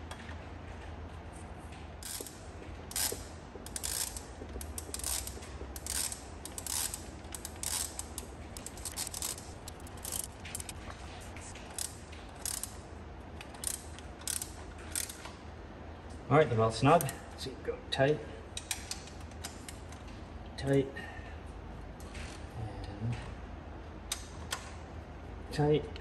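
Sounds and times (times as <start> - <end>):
steady low hum: 0.0 - 26.0
ratchet wrench clicking: 2.0 - 10.8, 11.7 - 12.8, 13.4 - 15.3.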